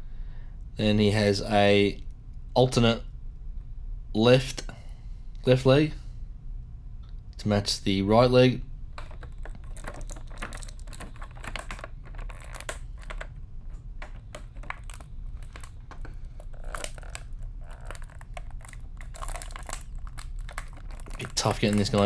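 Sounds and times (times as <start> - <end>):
plastic bag crinkling: 9.0 - 22.0.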